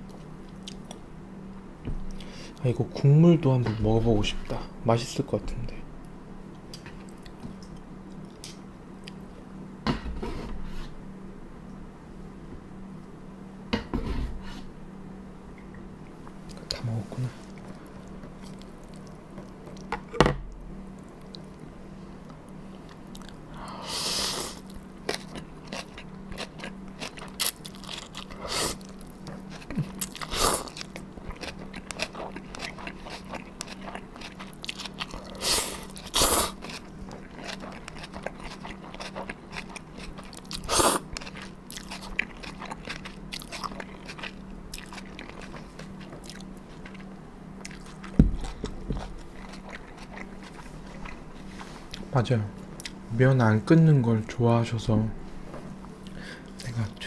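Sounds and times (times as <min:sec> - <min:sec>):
wet chewing and mouth clicks: 0:24.6 - 0:51.2
slurping noodles: 0:35.2 - 0:36.8, 0:40.6 - 0:41.0.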